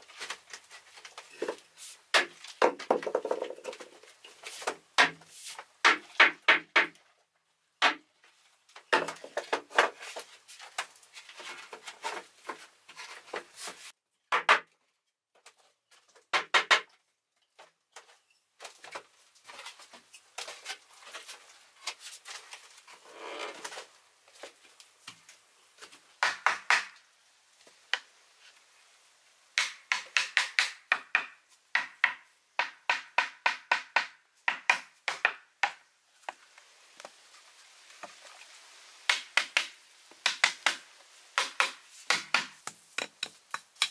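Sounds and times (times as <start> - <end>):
wooden mallet tapping bamboo: 29.6 - 36.4, 39.1 - 40.8.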